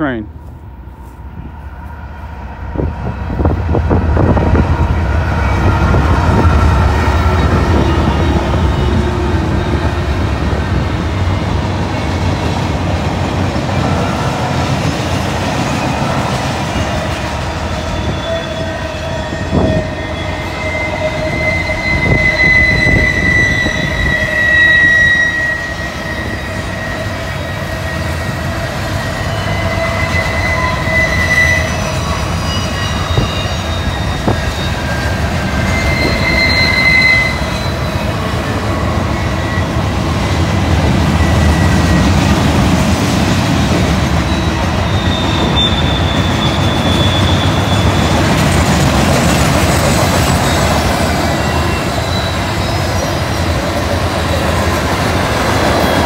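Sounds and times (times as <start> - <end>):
diesel locomotive: 0.0 - 56.0
freight train rumbling on rails: 0.0 - 56.0
wheels squealing: 15.7 - 42.3, 44.1 - 56.0.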